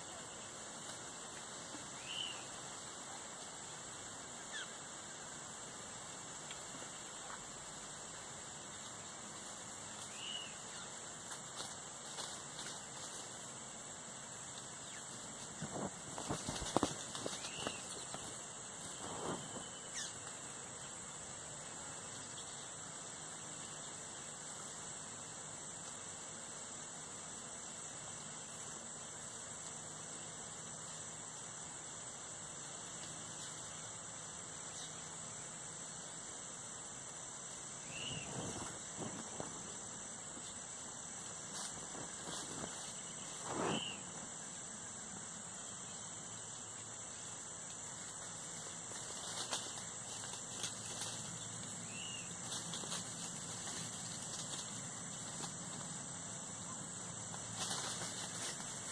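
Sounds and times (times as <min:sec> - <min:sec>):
high-pitched insect chorus: 0:00.0 - 0:58.9.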